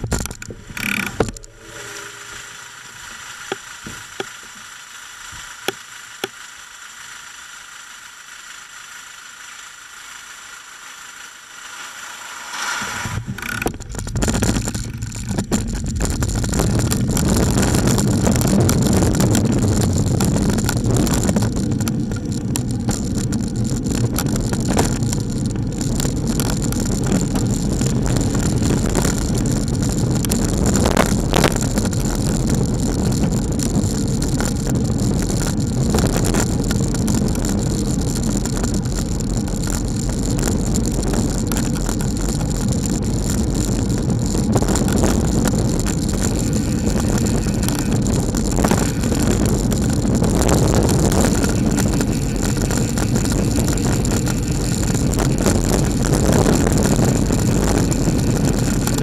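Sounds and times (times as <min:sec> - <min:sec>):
wind noise: 0:00.0 - 0:04.3, 0:12.7 - 0:59.0
bicycle road rumble: 0:00.0 - 0:59.0.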